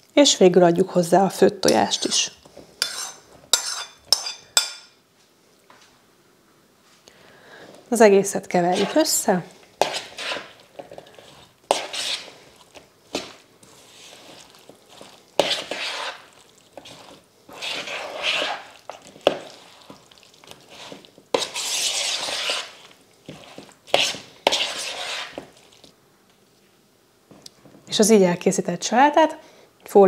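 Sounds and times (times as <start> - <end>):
spoon stirring egg salad: 1.7 - 4.9, 8.6 - 25.9.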